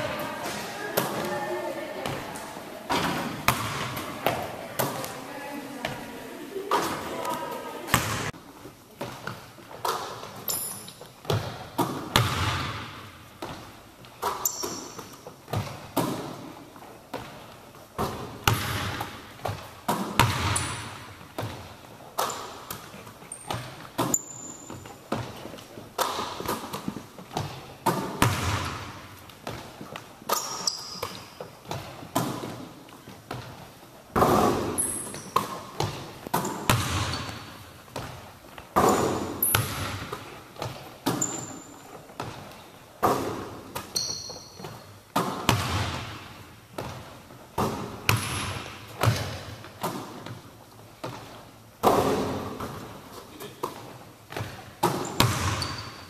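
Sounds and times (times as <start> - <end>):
ball hitting hoop: 2.9 - 5.0, 7.9 - 8.3, 11.2 - 13.6, 18.0 - 22.9, 26.0 - 29.6, 34.1 - 38.2, 38.8 - 41.6, 44.6 - 47.0, 47.6 - 50.4, 51.8 - 52.9, 53.7 - 55.9
sneaker squeaks: 9.0 - 12.5, 13.4 - 16.4, 17.1 - 29.7, 30.3 - 32.6, 34.2 - 38.2, 38.8 - 45.3, 52.5 - 56.0
basketball bouncing on hardwood: 11.2 - 13.6, 18.0 - 22.9, 26.0 - 29.7, 34.2 - 38.2, 42.2 - 50.4, 54.3 - 55.9.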